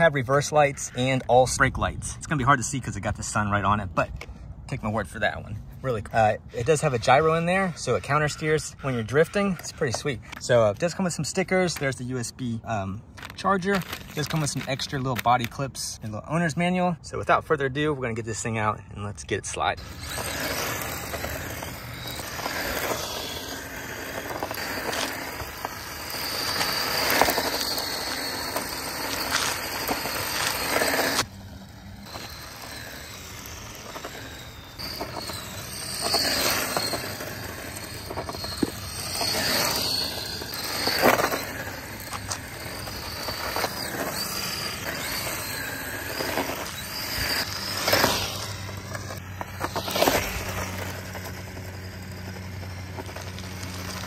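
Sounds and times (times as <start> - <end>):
tyres skidding on pavement: 4.8 - 15.8, 19.7 - 54.0
electric motor whining: 19.8 - 54.0.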